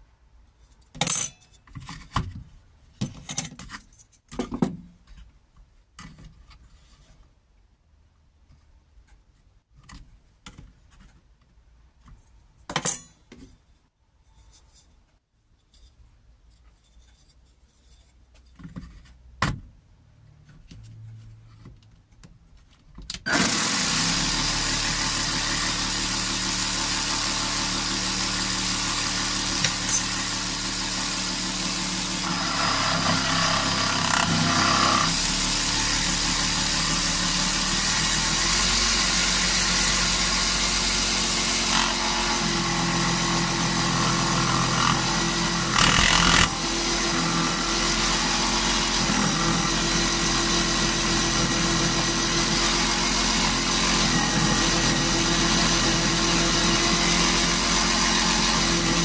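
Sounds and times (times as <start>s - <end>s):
reciprocating saw cutting wood: 23.3s - 59.0s.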